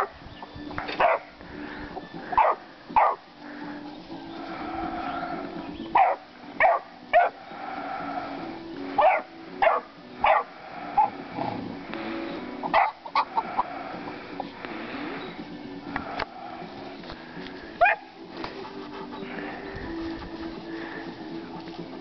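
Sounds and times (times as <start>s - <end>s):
puppies barking high-pitched: 0.0s - 0.2s, 0.9s - 1.4s, 2.2s - 3.3s, 5.3s - 7.4s, 9.0s - 11.2s, 12.6s - 14.0s, 17.8s - 18.2s.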